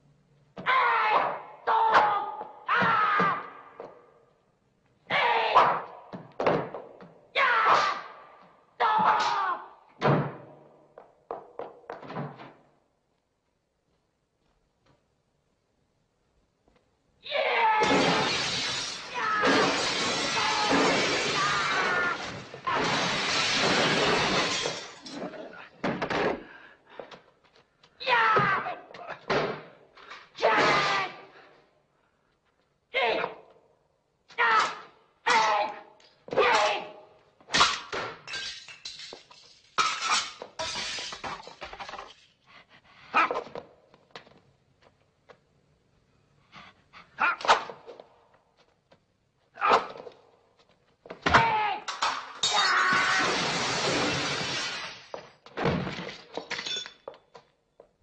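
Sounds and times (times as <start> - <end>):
glass shattering: 17.8 - 25.5, 37.6 - 42.4, 51.9 - 55.2, 55.8 - 57.2
glass fragments clinking: 18.2 - 21.4, 23.0 - 25.3, 38.3 - 42.4, 56.5 - 57.1
man shouting: 28.0 - 29.2, 32.9 - 33.4, 34.3 - 37.0, 47.2 - 47.5, 51.3 - 51.9
tinkling glass shards: 38.3 - 42.4, 56.5 - 57.0.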